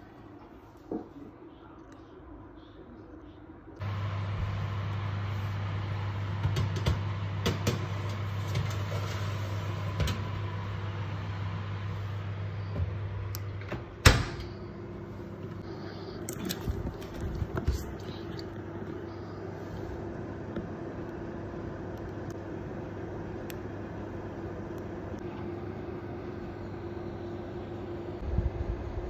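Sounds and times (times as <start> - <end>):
steady low hum: 0.0 - 29.0
oven door thump: 13.7 - 14.5.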